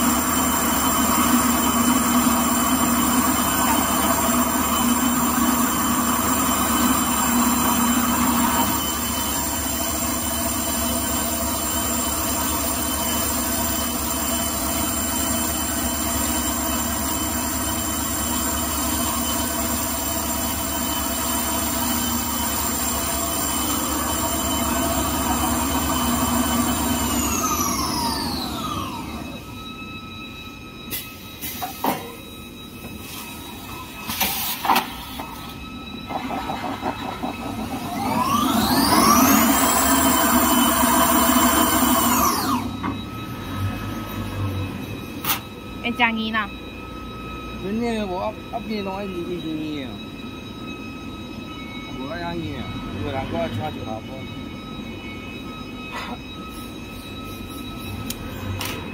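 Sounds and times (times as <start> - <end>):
machine hum with high whines: 0.0 - 58.9.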